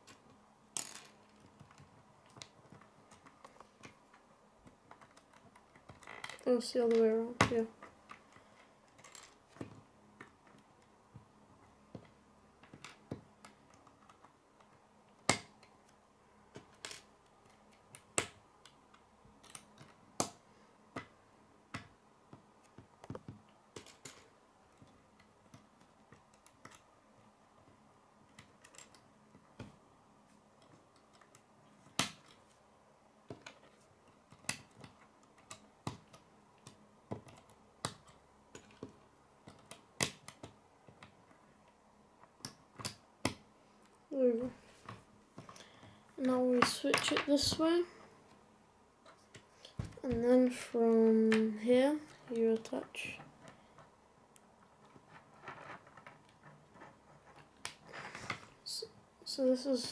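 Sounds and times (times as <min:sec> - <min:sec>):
plastic pieces clicking together: 0:00.8 - 0:07.0, 0:28.3 - 0:29.7.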